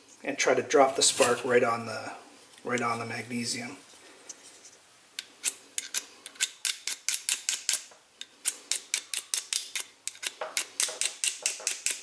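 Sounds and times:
steel striker scraping ferro rod: 5.4 - 12.0.

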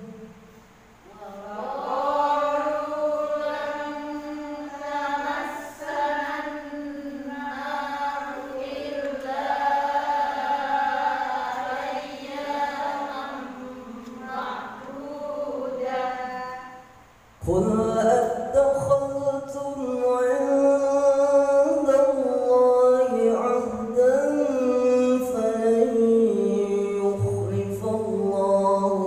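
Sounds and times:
man chanting melodic recitation: 17.4 - 29.0.

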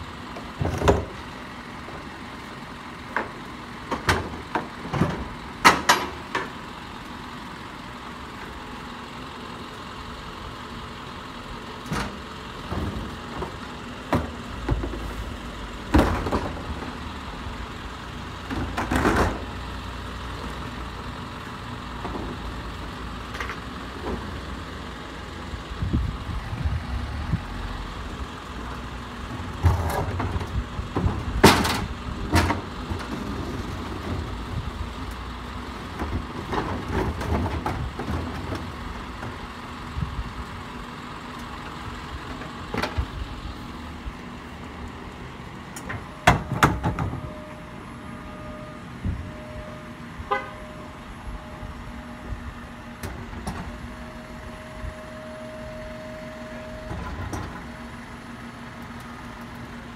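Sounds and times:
garbage truck running: 0.0 - 59.9
metal clanks and knocks: 3.1 - 6.6, 29.4 - 34.2, 45.8 - 47.5.

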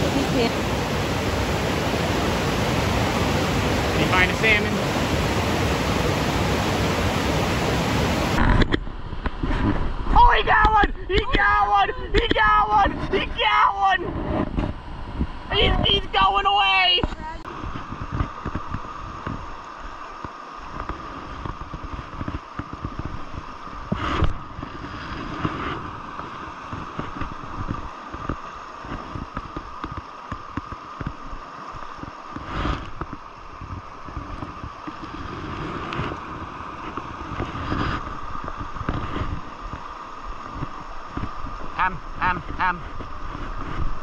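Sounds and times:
wind buffeting microphone: 0.0 - 13.4
river water rushing over rocks: 0.0 - 13.9, 14.8 - 44.0.

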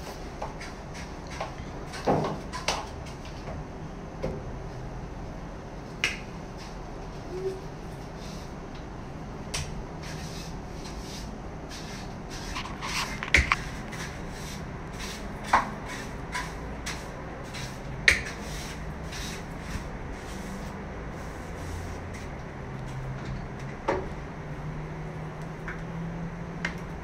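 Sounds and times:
broom sweeping a wall: 0.0 - 2.6, 6.6 - 8.6, 10.0 - 22.4.

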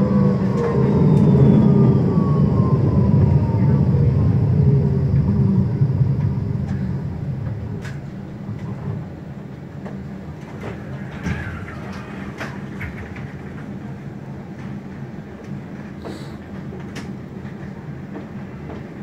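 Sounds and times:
standing tram hum: 0.0 - 19.0
tram running rumble: 0.0 - 19.0.

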